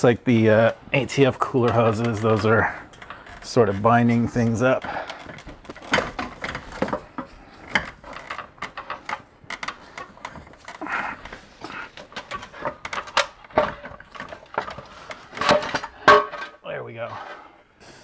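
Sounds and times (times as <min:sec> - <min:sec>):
metal scraping against metal: 0:00.5 - 0:17.6
metal clicks and clunks: 0:00.6 - 0:16.6.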